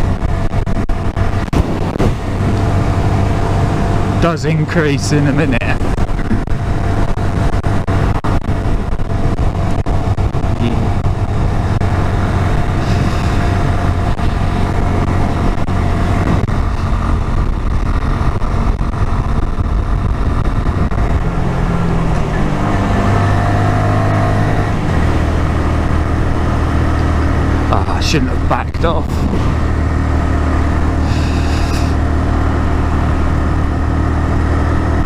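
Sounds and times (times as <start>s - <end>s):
wind rushing: 0.0s - 4.2s, 5.6s - 27.7s.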